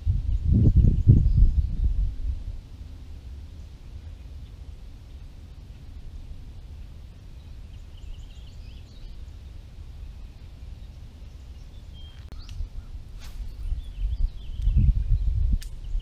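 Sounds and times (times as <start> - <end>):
wind rumble on microphone: 0.0 - 16.0
small birds chirping: 3.5 - 16.0.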